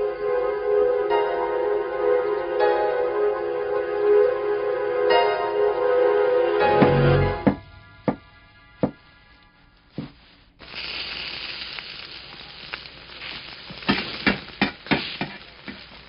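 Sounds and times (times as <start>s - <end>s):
sharp knocks: 6.8s - 9.0s
greens sizzling in hot oil: 10.2s - 16.0s.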